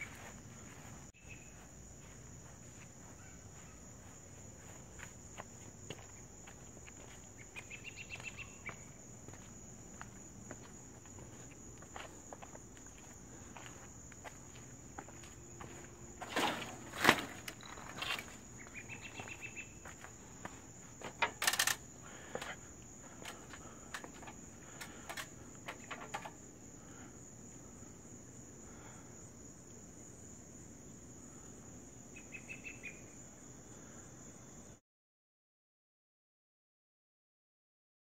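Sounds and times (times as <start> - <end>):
footsteps: 0.0 - 26.4
crickets chirring: 0.0 - 34.8
short chirping trills: 18.6 - 19.8
scattered clicks: 21.2 - 21.8.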